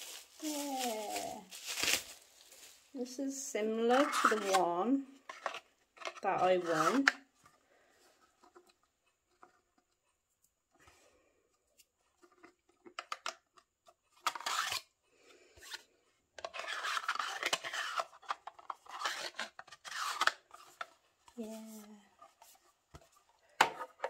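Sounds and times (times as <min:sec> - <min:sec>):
plastic scraping on plastic: 0:03.8 - 0:07.4, 0:14.2 - 0:14.9, 0:16.4 - 0:24.0.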